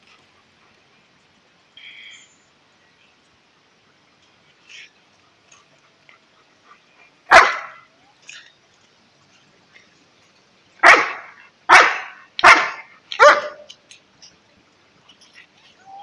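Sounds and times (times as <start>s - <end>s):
dog barking: 7.3s - 7.9s, 10.8s - 13.7s.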